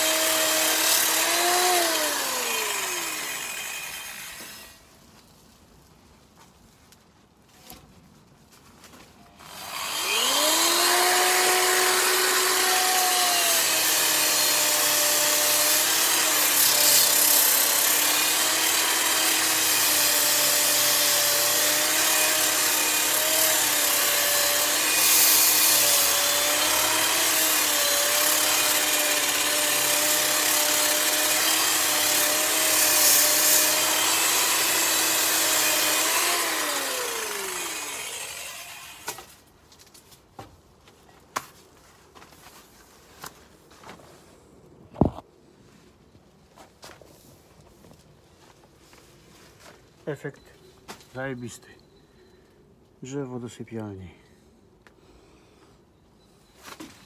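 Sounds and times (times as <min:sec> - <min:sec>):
angle grinder grinding wood: 0:00.0 - 0:04.8, 0:09.4 - 0:39.3.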